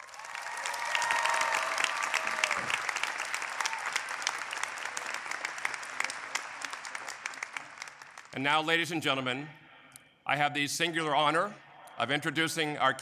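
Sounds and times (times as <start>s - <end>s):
crowd applauding: 0.0s - 8.4s.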